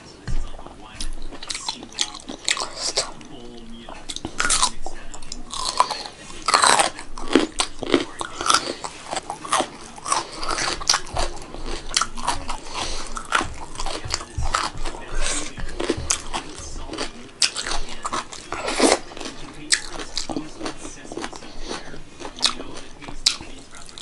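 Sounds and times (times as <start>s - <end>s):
chewing with sharp crunches: 0.3s - 24.0s.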